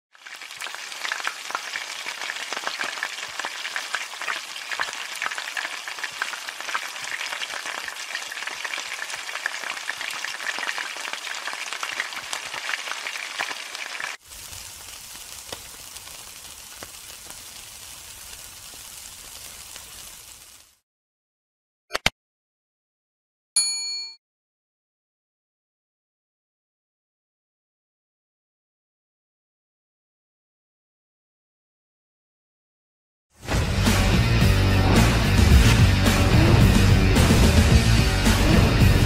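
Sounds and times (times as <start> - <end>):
food frying in a wok: 0.1 - 20.8, 33.4 - 39.0
skewers grilling over charcoal: 0.2 - 20.8, 35.3 - 37.0.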